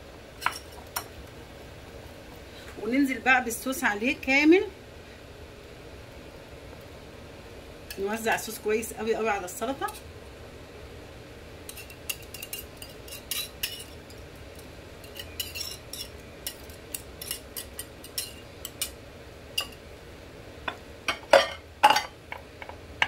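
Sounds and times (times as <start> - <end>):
knife scraping plate: 11.7 - 14.0, 15.0 - 18.9.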